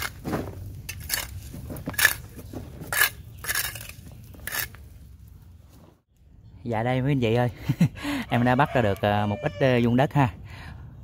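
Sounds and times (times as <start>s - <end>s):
trowel scraping compost on concrete: 0.0s - 5.0s.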